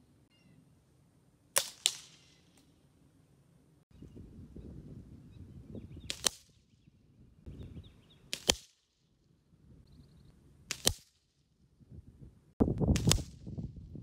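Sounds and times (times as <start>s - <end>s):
air rifle shots: 1.6s - 2.4s, 6.1s - 6.5s, 8.3s - 8.8s.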